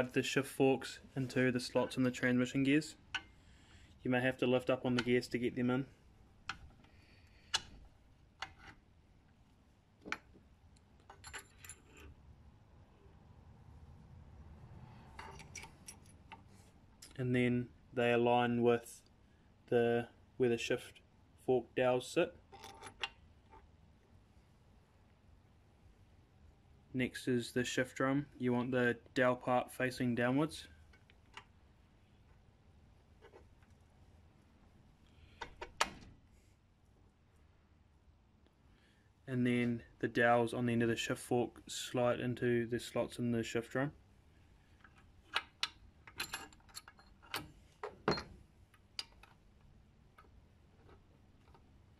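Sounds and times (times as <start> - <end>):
metallic clicks of engine parts: 3.1 - 3.4, 44.8 - 49.4.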